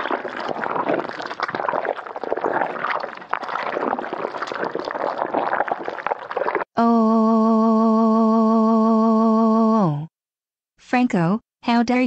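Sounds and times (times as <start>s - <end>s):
cartoon slime pouring: 0.0s - 6.8s.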